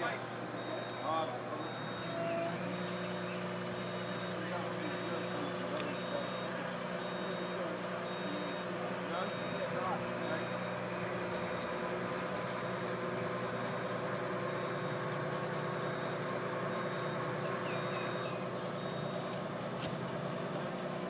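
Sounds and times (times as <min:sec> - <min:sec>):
high-pitched warning beep: 0:00.0 - 0:10.6, 0:17.0 - 0:19.3
diesel engine running: 0:00.0 - 0:21.0.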